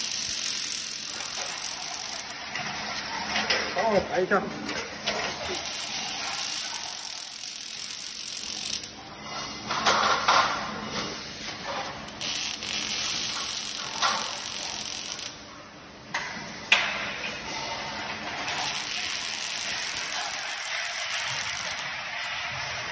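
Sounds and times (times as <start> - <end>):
welding arc crackling: 0.0 - 9.1, 11.4 - 15.4, 17.9 - 22.9.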